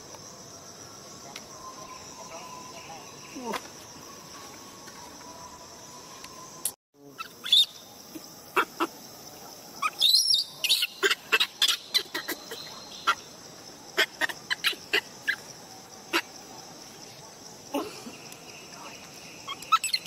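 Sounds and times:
insect drone: 0.0 - 20.0
baby monkey squeaking: 9.8 - 13.2, 19.5 - 20.0.

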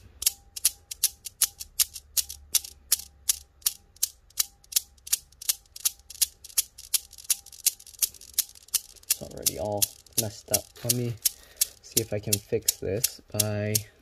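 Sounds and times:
steel balls clacking: 0.2 - 13.9.

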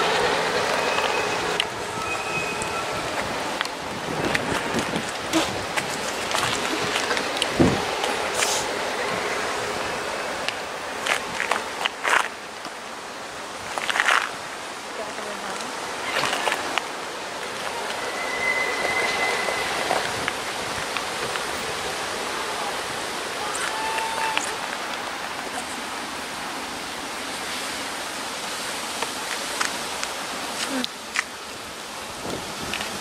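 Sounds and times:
thin high tone: 0.5 - 3.2, 17.5 - 20.7
wind on microphone: 1.7 - 10.0, 17.6 - 22.1, 32.1 - 33.0.

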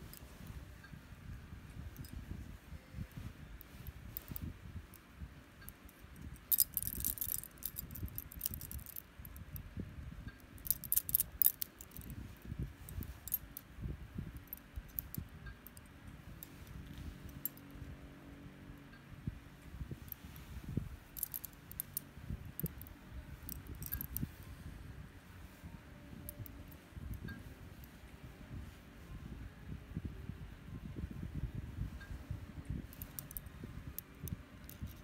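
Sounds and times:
soft rustle of fabric: 0.0 - 18.2, 19.0 - 35.0
metal bangles jingling: 3.1 - 4.5, 5.6 - 9.4, 10.5 - 13.7, 14.3 - 15.8, 16.4 - 17.7, 20.0 - 24.4, 26.1 - 28.0, 32.9 - 35.0.

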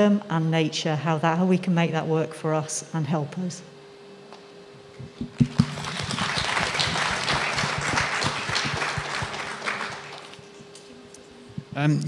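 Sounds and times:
audience applauding: 5.3 - 10.5.

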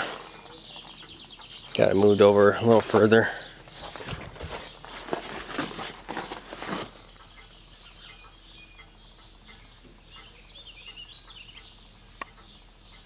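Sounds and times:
birds chirping and warbling: 0.0 - 13.0
footsteps rustling through brush: 2.0 - 7.2.

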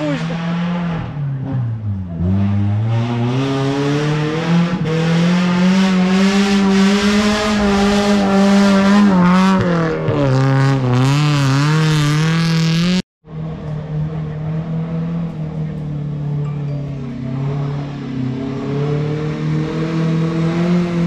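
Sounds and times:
engine revving hard: 2.2 - 13.0, 17.3 - 21.0.

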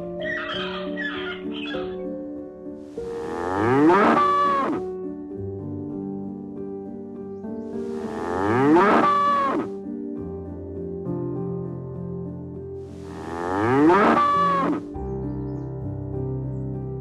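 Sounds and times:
soft background music: 0.0 - 17.0
cow mooing: 3.1 - 4.8, 8.0 - 9.7, 13.1 - 14.9.

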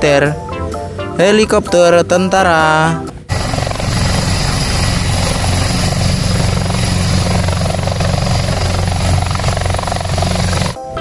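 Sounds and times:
high turbine whine: 3.0 - 11.0
helicopter rotor chop: 3.2 - 11.0.

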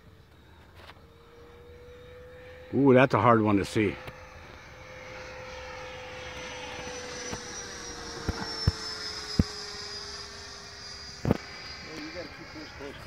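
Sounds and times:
model jet fan whine: 0.0 - 13.0.

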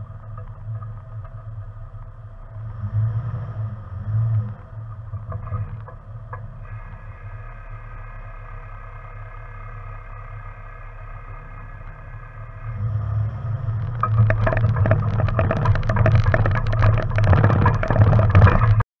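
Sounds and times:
vehicle engine: 0.0 - 18.9
knocks and rattles: 4.6 - 6.6, 13.4 - 18.8.

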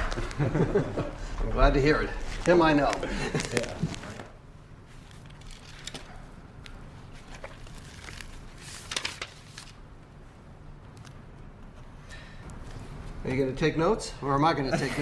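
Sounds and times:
paper rustling and crinkling: 2.2 - 6.3, 6.9 - 9.8.

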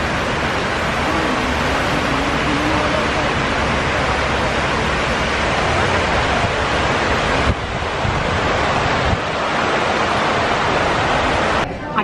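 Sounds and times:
waterfall pouring and splashing: 0.0 - 11.7.

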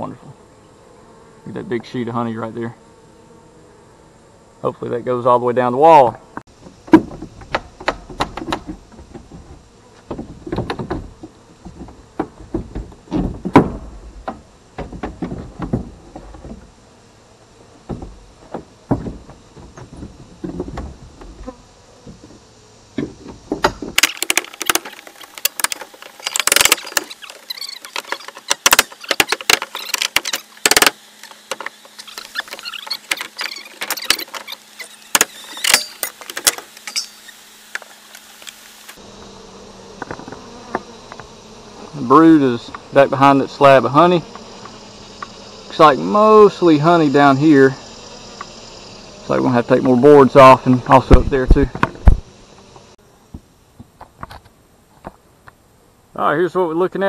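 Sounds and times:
honeybees buzzing: 0.0 - 56.8
hands knocking and scraping boards: 6.6 - 16.7, 17.8 - 21.4.

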